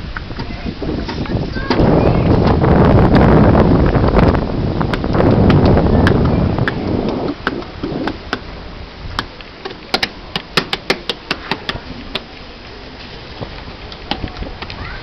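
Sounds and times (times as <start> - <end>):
wind buffeting microphone: 0.0 - 15.0
sharp irregular taps: 9.2 - 12.3.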